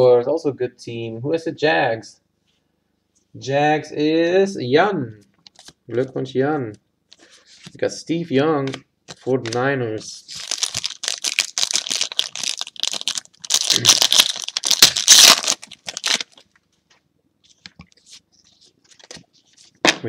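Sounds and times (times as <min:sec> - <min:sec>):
foil wrapper tearing and crinkling: 0:10.3 - 0:16.4.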